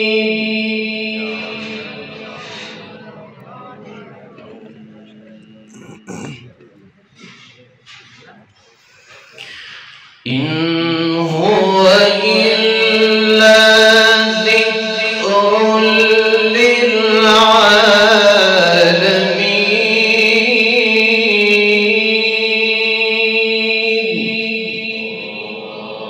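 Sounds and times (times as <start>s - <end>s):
man chanting into microphone: 5.7s - 6.4s, 10.3s - 26.0s.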